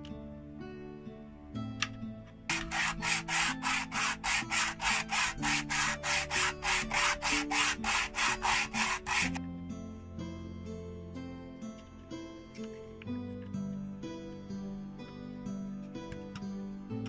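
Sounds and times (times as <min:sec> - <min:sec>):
wood sanding on sandpaper: 0:02.5 - 0:09.4.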